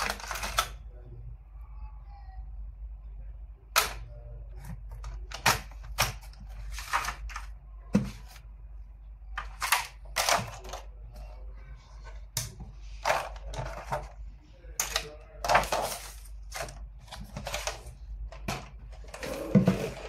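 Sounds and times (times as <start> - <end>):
low steady hum: 0.0 - 20.0
plastic packaging rustling: 5.0 - 8.4, 14.9 - 20.0.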